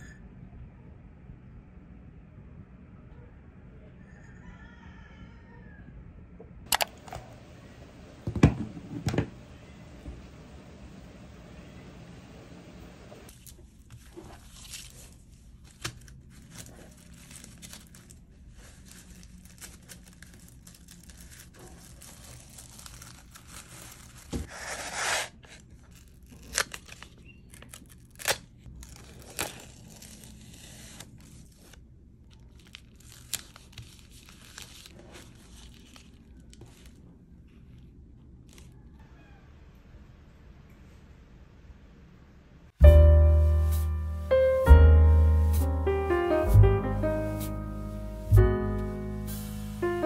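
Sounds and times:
paper wrap crinkling and rustling: 13.3s - 38.9s
paper tearing at tape dispenser: 18.9s - 31.8s.

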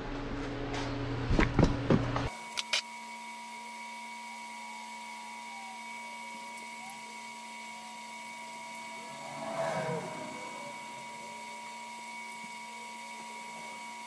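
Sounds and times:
electrical hum: 4.7s - 14.0s
high whine: 7.6s - 14.0s.

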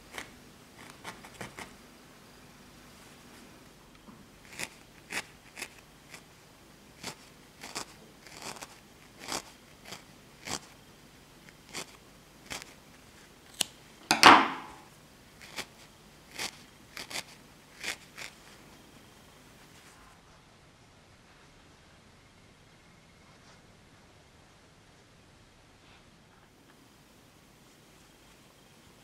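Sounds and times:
felting needle crunching into wool: 7.0s - 10.8s, 15.4s - 18.4s.

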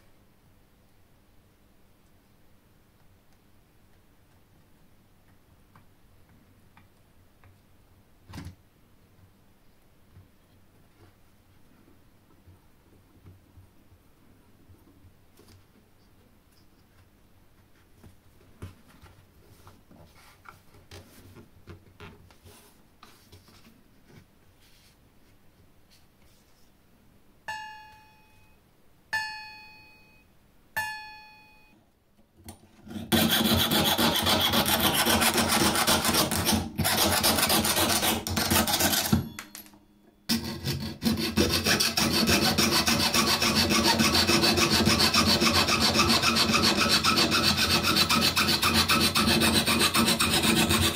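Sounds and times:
saw blade plucked ringing: 27.5s - 31.7s
saw rasping through metal: 32.9s - 39.3s, 40.3s - 50.9s.

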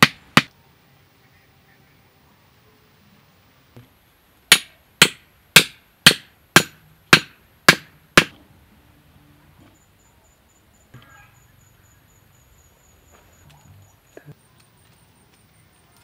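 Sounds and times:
axe head striking wooden stake: 0.0s - 0.5s, 4.5s - 8.4s.

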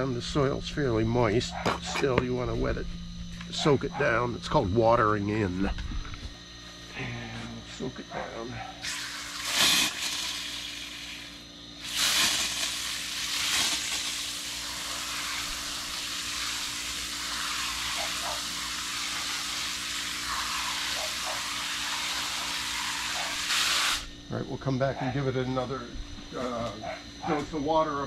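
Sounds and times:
hose spraying water onto soil: 8.8s - 24.1s.

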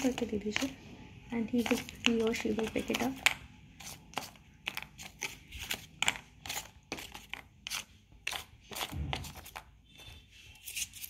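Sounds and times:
cardboard tiles clicking in basket: 1.6s - 9.6s.

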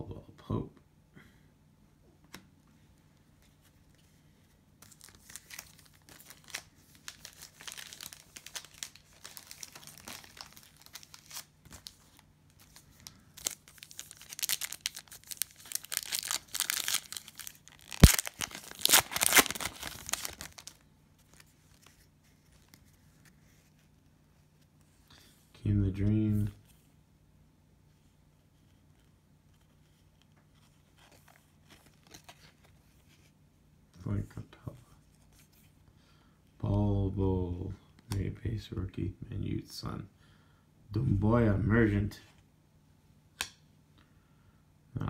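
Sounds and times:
cellophane tearing and crinkling: 4.8s - 22.0s.

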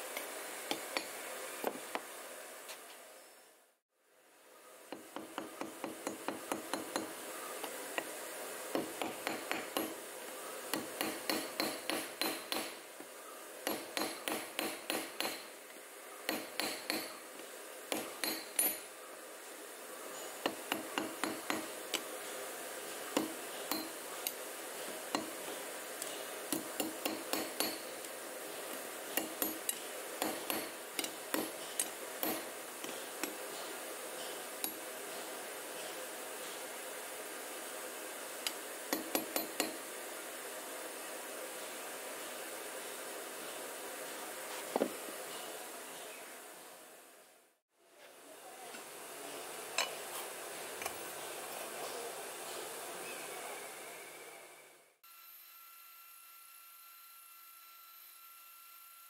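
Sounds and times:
hammer striking iron rod: 8.7s - 10.0s, 10.7s - 12.8s, 13.6s - 15.5s, 16.3s - 17.1s, 17.9s - 18.9s, 20.4s - 21.7s, 26.5s - 27.9s, 29.2s - 31.6s.

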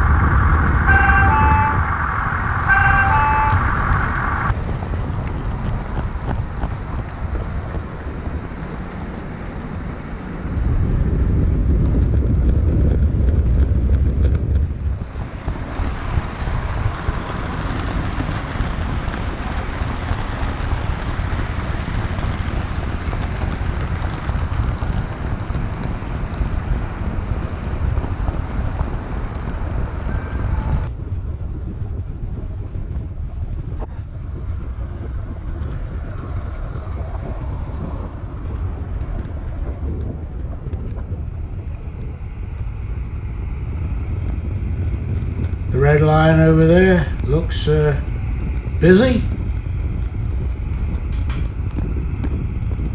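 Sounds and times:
model train rolling on track: 44.6s - 51.8s.

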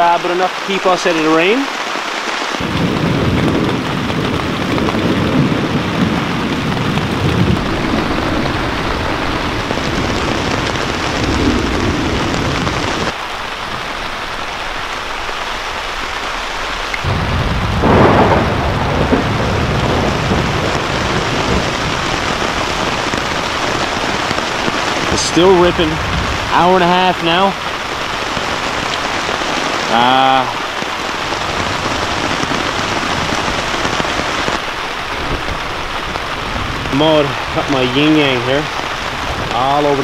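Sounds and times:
heavy rain on a tarp: 0.0s - 40.0s
loud thunder crack: 2.6s - 13.1s, 17.0s - 30.6s
thunder rumbling: 2.6s - 40.0s.

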